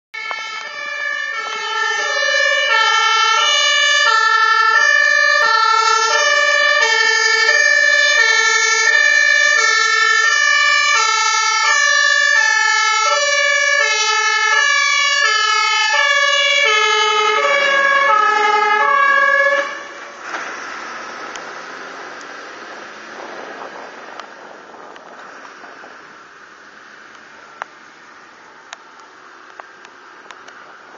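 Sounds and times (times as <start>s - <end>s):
two-tone fire engine horn: 0.2s - 20.0s
rushing noise: 0.2s - 29.4s.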